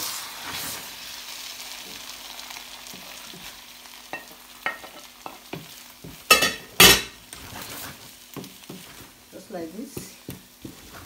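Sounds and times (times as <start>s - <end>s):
omelette sizzling in a frying pan: 0.0s - 11.0s
wooden spatula tapping: 8.4s - 8.9s, 9.9s - 10.9s.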